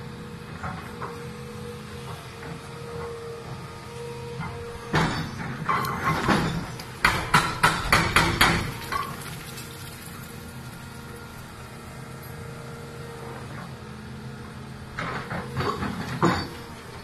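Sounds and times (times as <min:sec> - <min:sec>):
excavator engine hum: 0:00.0 - 0:17.0
concrete crashing and crumbling: 0:05.1 - 0:11.0
sharp knocks: 0:06.2 - 0:08.8.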